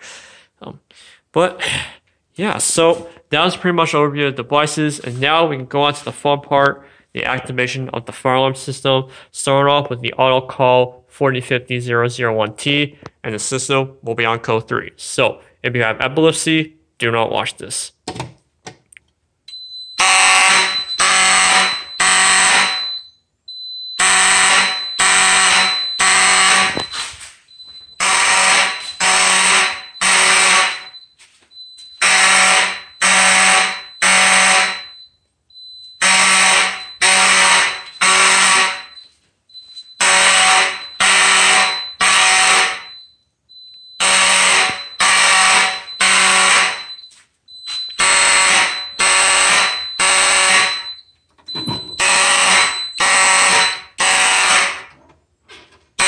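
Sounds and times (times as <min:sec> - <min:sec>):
fire alarm horn blasts: 0:19.5 - 0:55.0.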